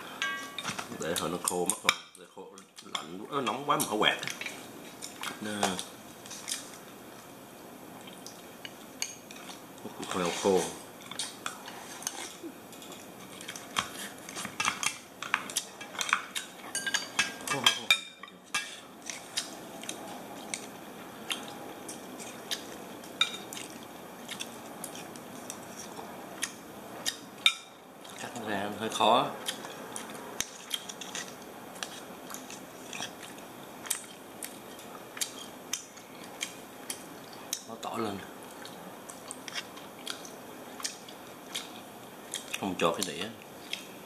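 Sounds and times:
cutlery clinking on shell and bowls: 12.7s - 18.8s.

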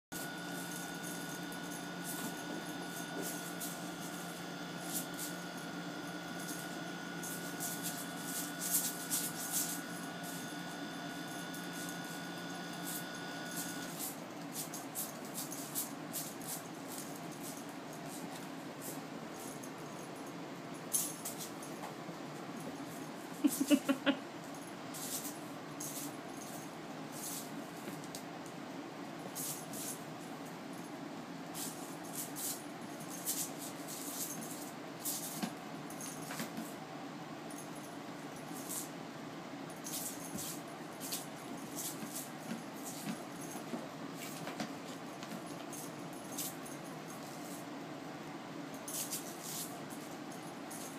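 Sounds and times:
faint steady whine: 0.1s - 50.9s
low steady hum: 0.1s - 50.9s
soft rustling: 39.8s - 47.7s, 48.8s - 50.9s.

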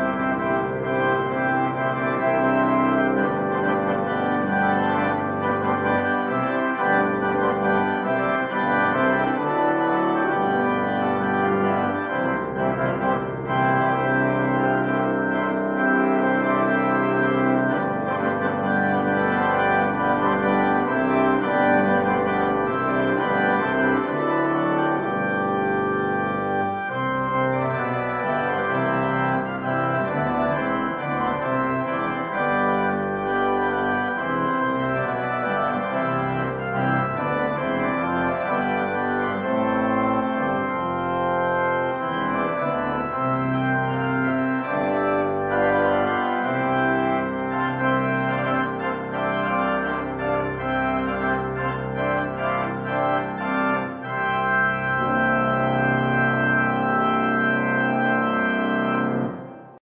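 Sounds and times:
church organ chords: 0.0s - 59.8s.

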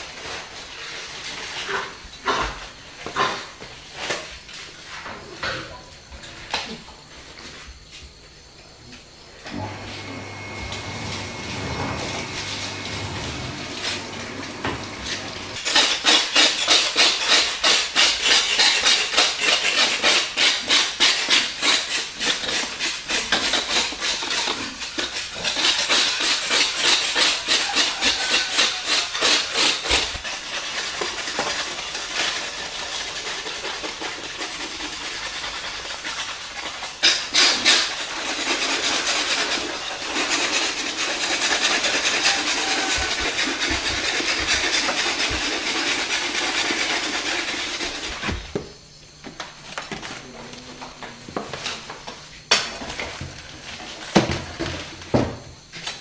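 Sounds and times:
hand tool scraping crisp skin: 13.7s - 49.2s.

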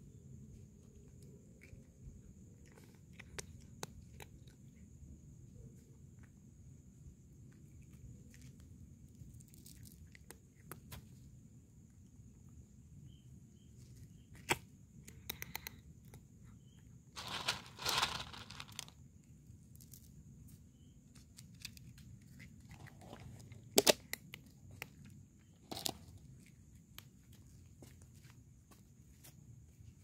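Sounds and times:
cat crunching dry kibble: 1.6s - 4.8s, 7.4s - 10.9s, 14.4s - 15.8s, 17.2s - 20.2s, 21.2s - 26.9s
rustle: 17.1s - 18.9s.

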